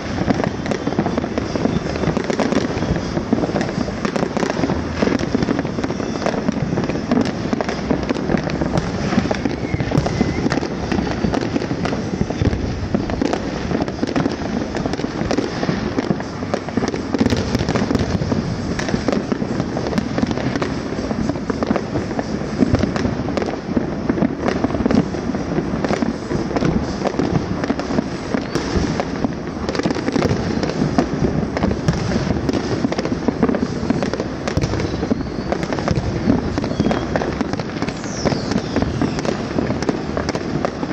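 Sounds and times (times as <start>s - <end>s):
fireworks crackling and popping: 0.0s - 40.9s.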